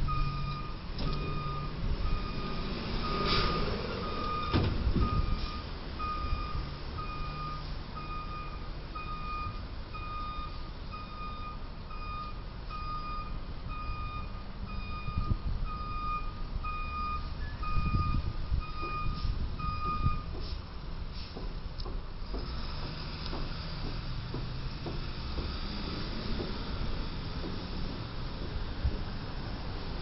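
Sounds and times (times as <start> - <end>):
reversing alarm beeping: 0.0 - 20.4
low traffic rumble: 0.0 - 30.0.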